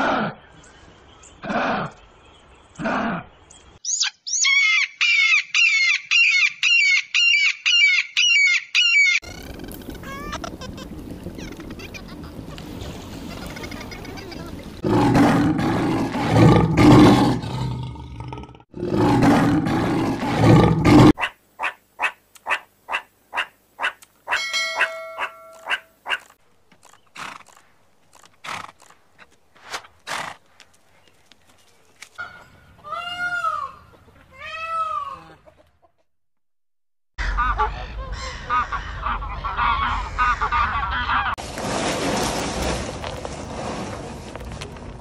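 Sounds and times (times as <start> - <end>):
peacock calling: 3.8 - 14.5, 21.2 - 27.5.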